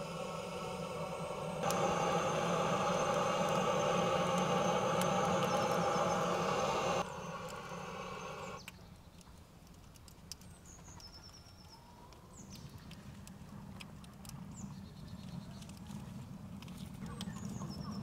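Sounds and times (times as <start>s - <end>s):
aerosol spray hissing: 0.0s - 8.6s
kindling crackling: 0.0s - 8.6s.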